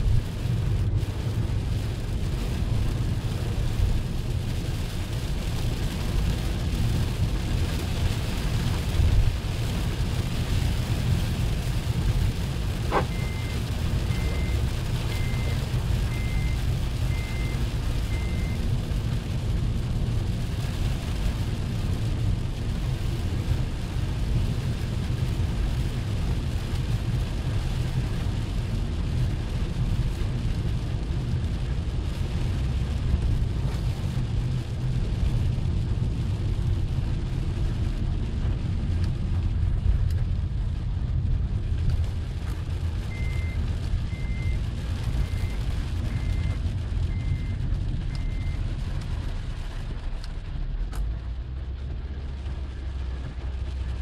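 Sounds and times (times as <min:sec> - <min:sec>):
car engine and tyre rumble: 0:00.0 - 0:54.0
short high beeps: 0:12.9 - 0:13.5, 0:14.1 - 0:15.5, 0:16.1 - 0:18.6.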